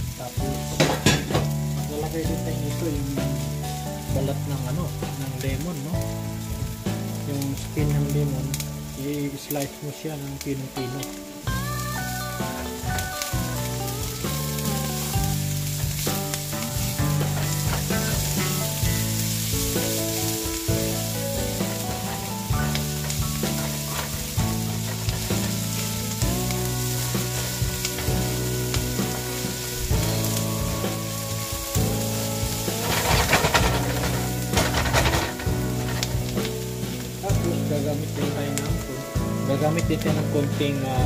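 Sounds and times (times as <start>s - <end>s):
onion and ginger sizzling in oil: 0.0s - 41.0s
soft background music: 0.0s - 41.0s
spatula stirring in a pan: 12.4s - 37.3s.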